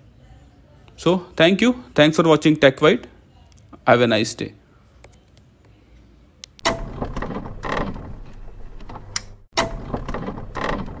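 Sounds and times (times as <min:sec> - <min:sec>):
clattering mechanical sound effect: 0:06.6 - 0:11.0.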